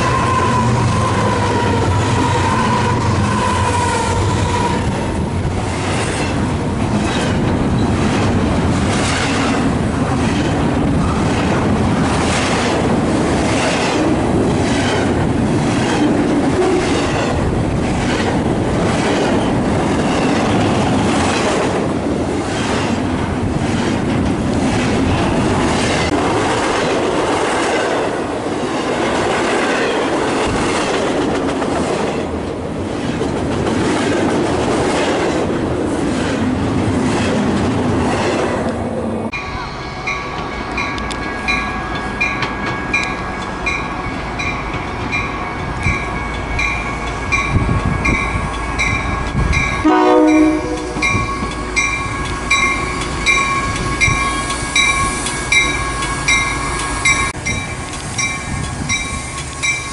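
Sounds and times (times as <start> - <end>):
train horn blast: 0.0 - 5.2, 49.8 - 51.8
commuter train pulling in: 0.0 - 59.9
train wheels clattering over rails: 4.9 - 38.7
crossing bells ringing: 39.3 - 59.9.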